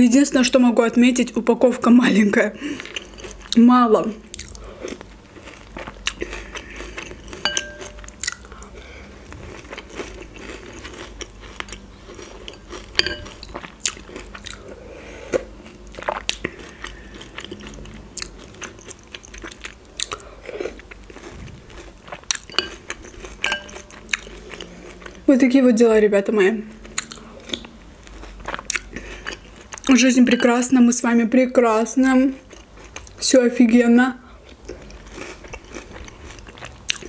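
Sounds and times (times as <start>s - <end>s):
chewing and crunching cereal: 2.7s - 3.6s, 4.3s - 25.3s, 26.7s - 30.1s, 32.3s - 33.3s, 34.4s - 37.0s
metal spoon clinking glass bowl: 7.4s - 8.1s, 13.0s - 13.4s, 22.5s - 22.8s, 23.4s - 24.0s, 30.3s - 30.7s.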